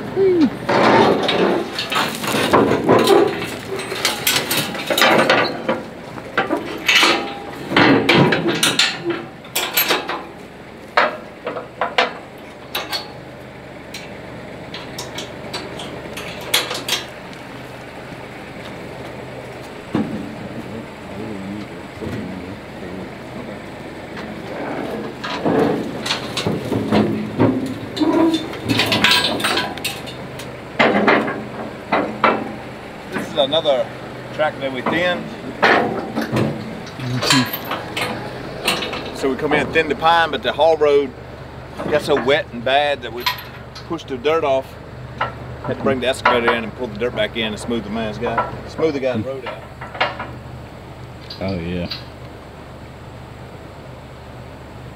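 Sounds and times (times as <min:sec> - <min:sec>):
engine idling: 0:00.0 - 0:54.9
chains clanking: 0:00.7 - 0:05.8, 0:06.4 - 0:10.3, 0:11.0 - 0:13.2, 0:25.2 - 0:31.4, 0:34.5 - 0:40.3, 0:41.9 - 0:44.0
faint low hum: 0:14.7 - 0:54.9.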